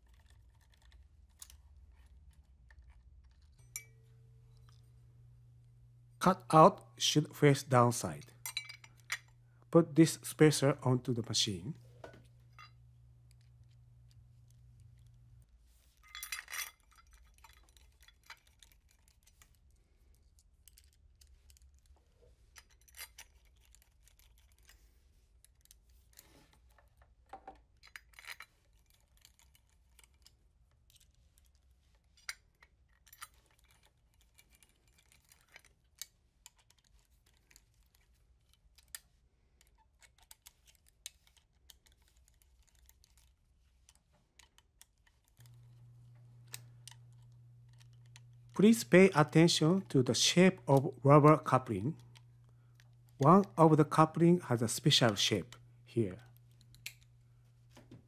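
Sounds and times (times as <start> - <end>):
small screws clinking: 0.0 - 4.9, 8.1 - 9.4, 12.0 - 49.8, 55.5 - 57.2.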